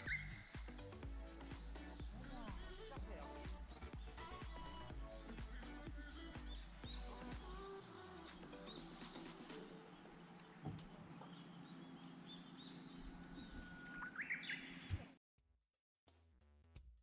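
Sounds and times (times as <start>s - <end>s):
birds chirping and calling: 0.0s - 4.9s, 6.1s - 15.1s.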